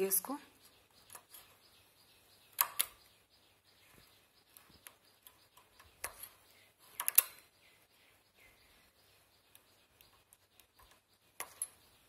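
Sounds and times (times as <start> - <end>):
knitting machine needles clicking: 2.5 - 3.0, 4.5 - 7.5, 9.4 - 12.0.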